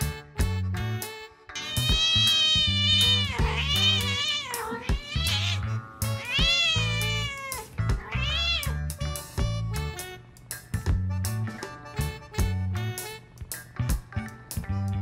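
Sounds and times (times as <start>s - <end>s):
background music with bass line: 0.0s - 4.2s, 4.9s - 15.0s
cat meowing: 1.6s - 8.9s.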